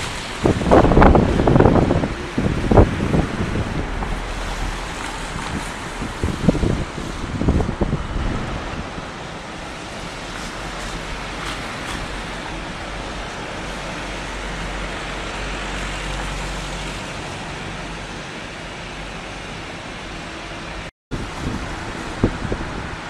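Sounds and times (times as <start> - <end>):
wind on microphone: 0.0 - 17.8, 21.1 - 23.0
passing road traffic: 0.0 - 23.0
water: 0.0 - 23.0.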